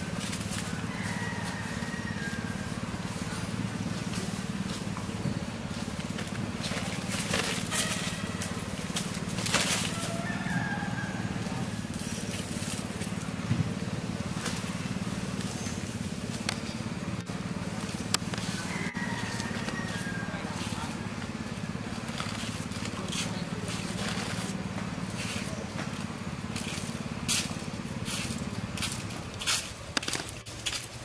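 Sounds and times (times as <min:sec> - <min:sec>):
low mechanical hum: 0:00.0 - 0:31.0
faint high calls: 0:06.8 - 0:09.0.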